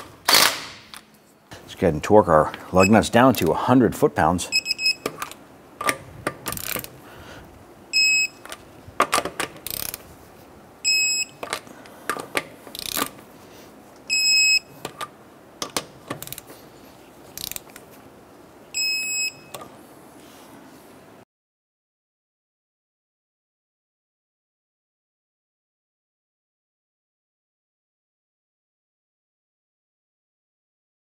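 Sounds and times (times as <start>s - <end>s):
torque wrench beeps: 2.8s - 3.0s, 4.5s - 5.2s, 7.9s - 8.4s, 10.8s - 11.4s, 14.1s - 14.7s, 18.8s - 19.6s
ratchet clicks: 5.1s - 6.9s, 9.2s - 10.0s, 12.7s - 13.2s, 16.2s - 16.5s, 17.4s - 17.8s.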